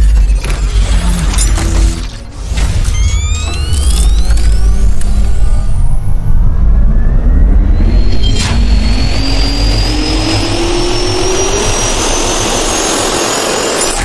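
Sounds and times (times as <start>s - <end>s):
jet engine spooling up: 3.0s - 14.0s.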